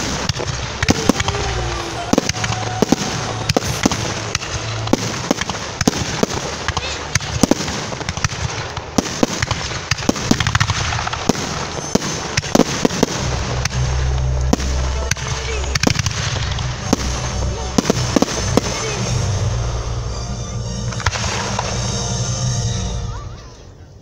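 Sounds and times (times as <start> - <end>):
fireworks bangs and crackles: 0.0 - 23.7.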